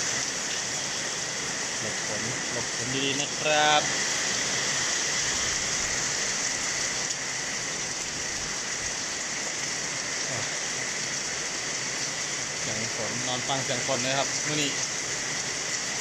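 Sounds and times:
heavy rain on ground and foliage: 0.0 - 16.0.

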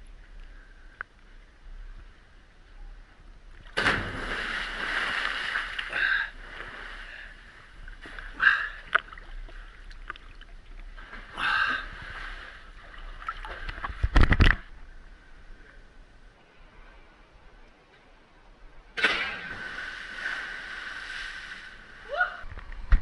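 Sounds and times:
splash with low thump: 3.7 - 5.9
sea water sloshing and splashing: 3.8 - 14.3.

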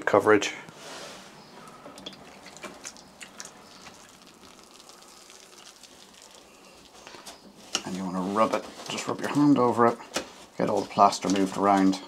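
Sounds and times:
small drips: 1.6 - 7.9
wet bandage crinkling: 1.6 - 9.4.

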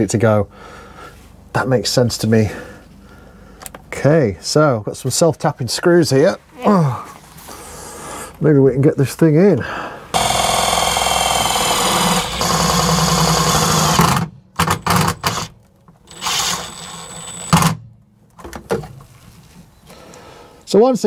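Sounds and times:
cordless drill driving screws: 10.2 - 17.8.

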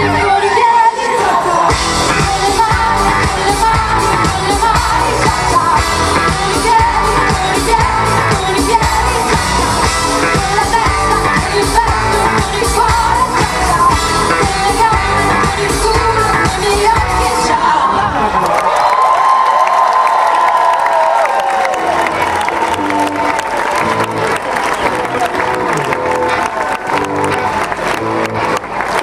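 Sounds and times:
person singing: 0.0 - 18.3
live pop band playing: 0.0 - 18.4, 21.7 - 29.0.

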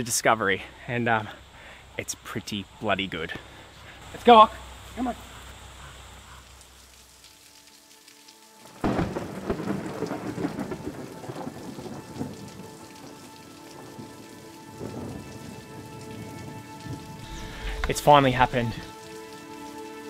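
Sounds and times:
heavy rain: 0.0 - 20.0
thunder crack: 8.8 - 11.6, 17.2 - 18.8.

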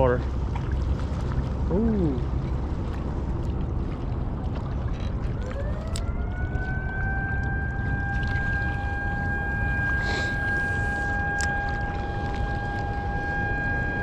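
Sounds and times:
wind: 0.0 - 14.0
siren winding up: 5.4 - 14.0.

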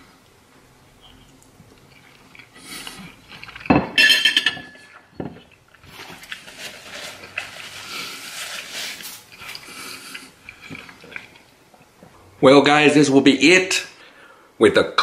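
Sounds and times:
fork clinking on plate: 3.9 - 5.0
paper napkin rustling: 5.8 - 10.1.

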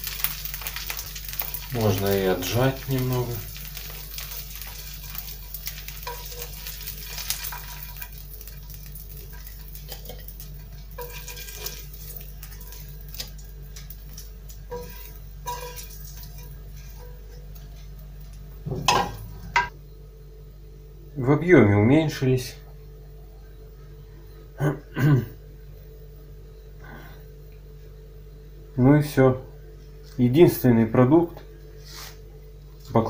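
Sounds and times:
oil sizzling: 0.0 - 19.7
pan clattering on stove grate: 11.0 - 11.8, 14.7 - 17.1, 18.7 - 19.7
metal spatula scraping pan: 11.0 - 12.9, 14.7 - 17.2.

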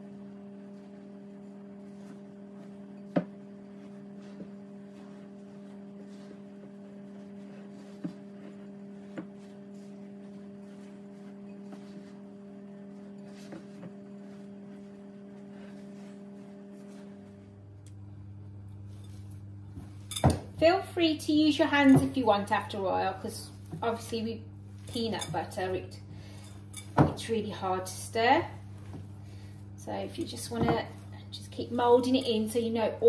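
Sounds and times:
low electrical hum: 0.0 - 33.0
spatula scraping bowl: 3.6 - 12.3, 20.0 - 33.0.

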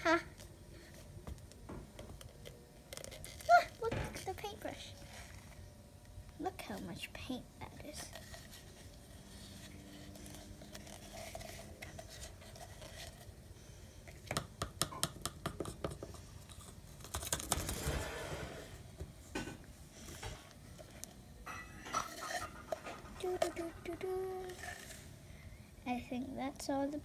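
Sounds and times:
crinkly scrape of paint tube: 7.9 - 13.4, 22.0 - 25.1.

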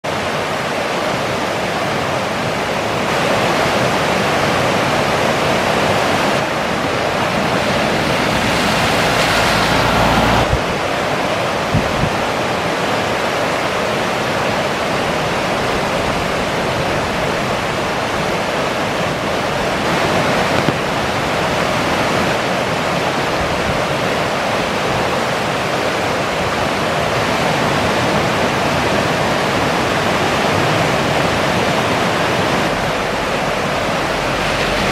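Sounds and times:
floodwater rushing over rapids: 0.0 - 34.9
low rumble: 6.5 - 10.8, 32.7 - 34.9.

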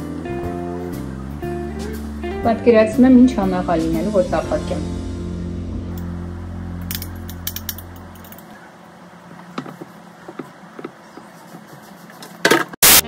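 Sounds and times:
background music: 0.0 - 8.4.

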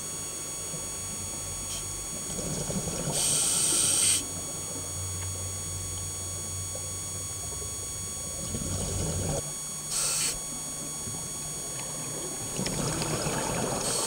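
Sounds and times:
electronic hum: 0.0 - 14.0
regulator breathing bubbles: 1.6 - 5.0, 7.6 - 14.0
short sharp hiss: 9.9 - 10.4.

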